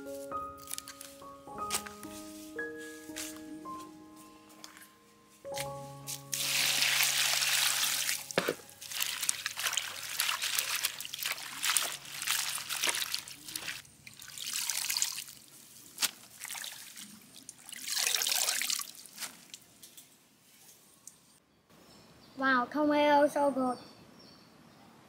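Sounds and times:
water pouring into basin: 6.3s - 15.7s, 16.3s - 19.1s
hands splashing in water: 6.3s - 19.5s
water dripping: 6.3s - 20.0s.

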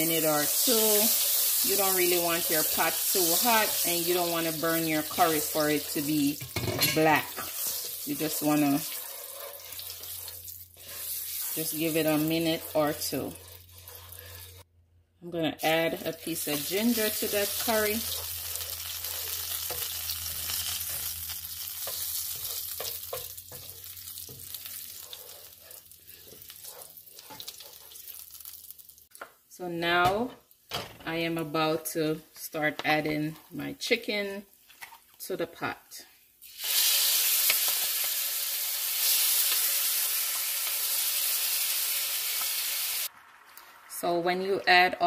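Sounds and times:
spices sizzling in hot oil: 0.0s - 14.7s, 15.6s - 29.3s, 36.4s - 44.9s
wooden spoon scraping pan: 6.8s - 14.7s, 21.8s - 28.1s.

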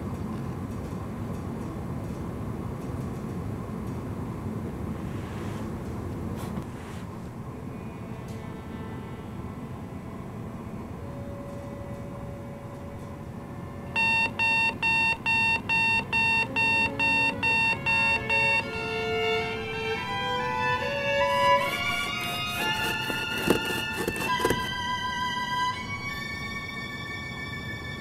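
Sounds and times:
electronic alarm beeping: 14.0s - 18.8s
violin notes rising in pitch: 16.5s - 23.8s.

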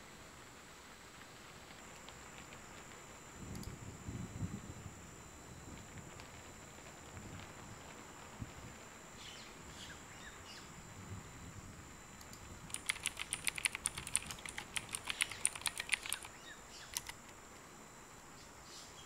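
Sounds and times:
keyboard typing: 12.2s - 17.4s.

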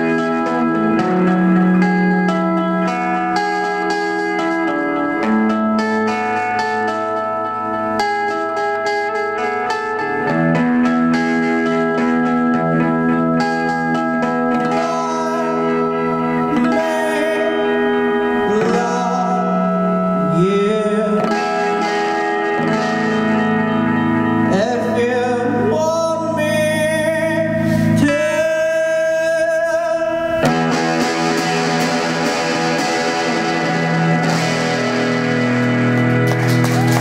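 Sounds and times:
electric guitar: 0.0s - 37.0s
man singing: 14.2s - 22.4s, 24.5s - 31.0s.

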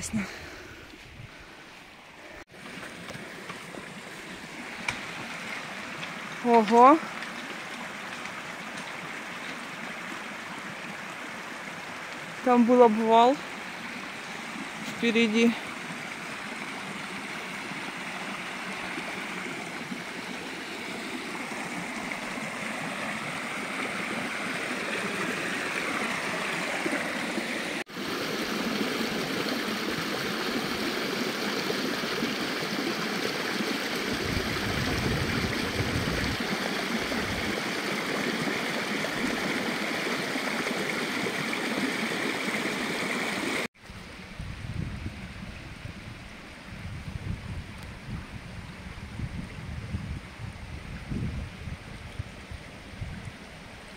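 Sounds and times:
creek rushing over rocks: 0.8s - 43.7s.

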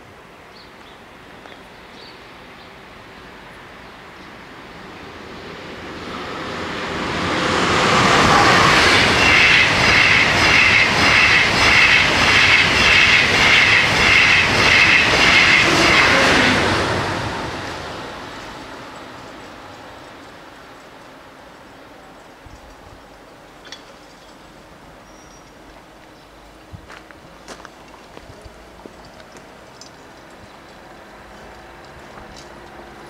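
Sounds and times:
train rushing past: 2.4s - 22.0s.

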